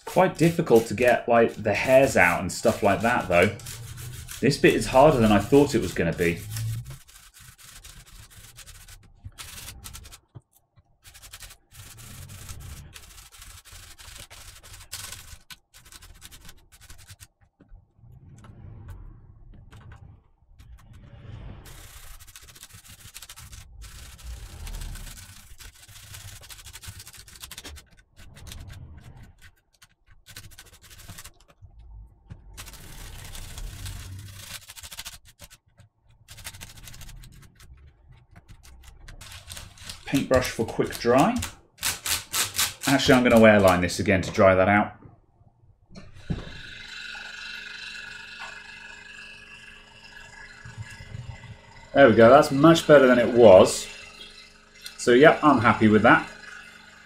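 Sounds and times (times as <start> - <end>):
toothbrush scrubbing keyboard: 0.0 - 10.4, 11.0 - 17.5, 21.7 - 44.0.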